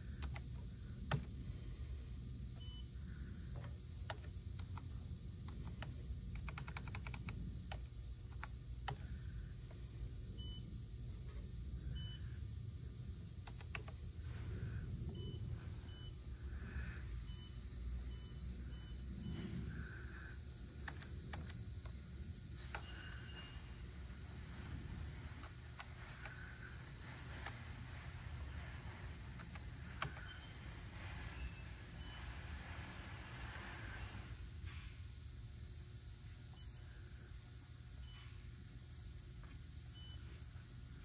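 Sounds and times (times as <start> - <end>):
steady low hum: 0.0 - 41.0
sharp clicks: 3.5 - 9.0, 13.4 - 14.1, 20.8 - 22.0, 25.4 - 27.7, 29.3 - 30.6.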